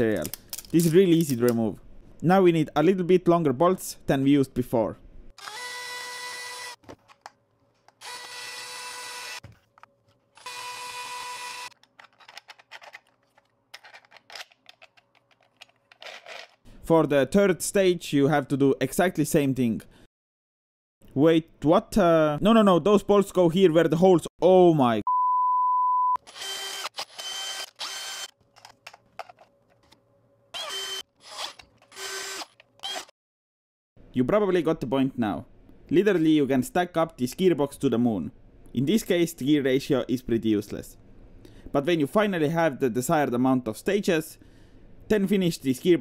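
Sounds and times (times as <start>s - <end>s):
plastic parts clicking: 0.0s - 1.6s, 11.8s - 16.6s, 28.5s - 30.0s
cordless drill running in bursts: 5.4s - 6.8s, 8.0s - 9.4s, 10.4s - 11.8s, 26.2s - 28.3s, 30.6s - 33.1s
power tool whining: 8.0s - 9.5s, 10.4s - 11.8s, 26.2s - 28.4s, 30.6s - 33.1s.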